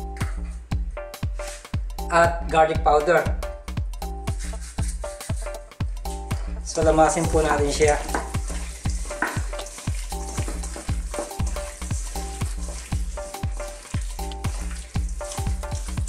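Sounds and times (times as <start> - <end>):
music with a steady beat: 0.0 - 16.0
hands kneading wet meat in a bowl: 6.1 - 16.0.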